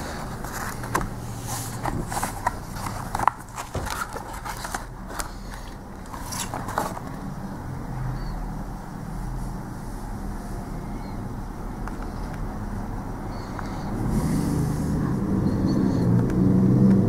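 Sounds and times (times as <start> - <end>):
stiff paper rustling: 0.0 - 7.2
steady low hum: 0.0 - 17.0.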